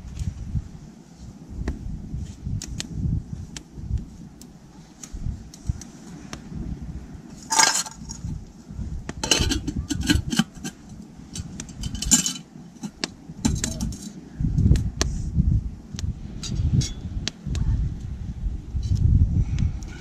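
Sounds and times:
metal pots clinking and clattering: 7.4 - 8.2, 9.2 - 10.8, 11.8 - 14.1.

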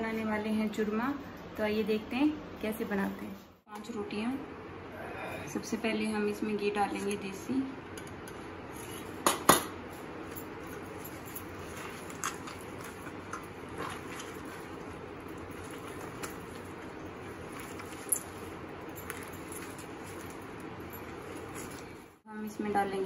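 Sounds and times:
hands tearing bread rustling: 10.4 - 22.2.

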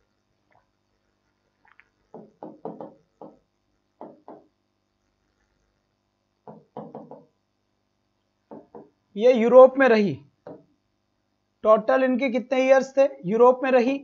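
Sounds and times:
chalk knocking on blackboard: 2.1 - 3.4, 4.0 - 4.5, 6.4 - 7.3.

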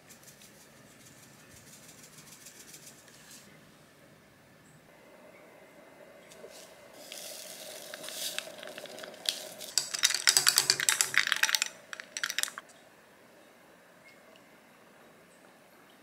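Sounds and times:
soft rustling hiss: 0.0 - 3.9, 6.2 - 10.0
ice cubes clinking in glass: 7.2 - 12.6.

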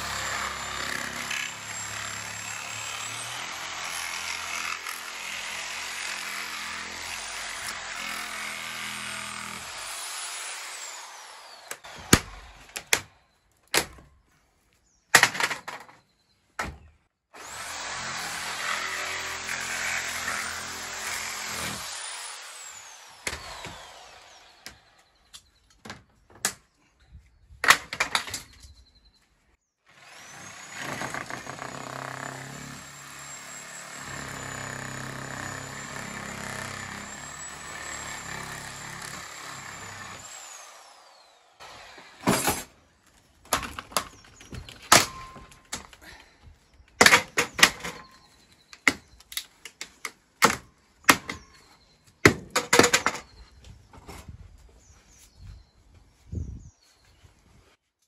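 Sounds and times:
power tool whine cutting plastic: 17.4 - 25.2.

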